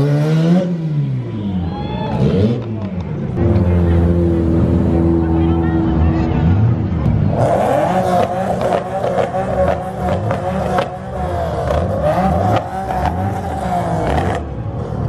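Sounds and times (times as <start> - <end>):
car engines revving: 0.0 - 15.0.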